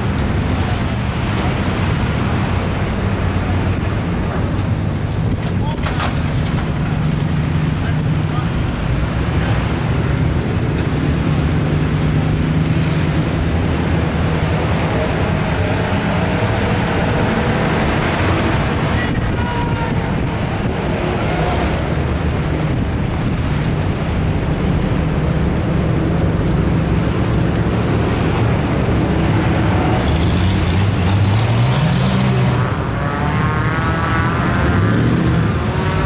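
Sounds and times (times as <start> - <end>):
wind on microphone: 9.3 - 30.0.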